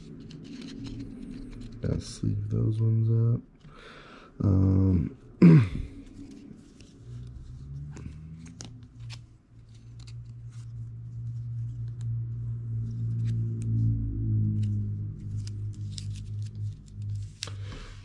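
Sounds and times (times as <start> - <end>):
cards clicking and rustling: 0.0 - 2.1, 6.0 - 12.2, 14.5 - 18.0
low steady hum: 0.0 - 18.0.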